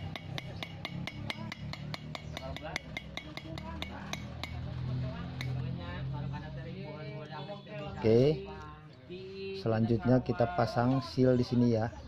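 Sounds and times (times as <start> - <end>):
hammer tapping on metal: 0.0 - 4.7.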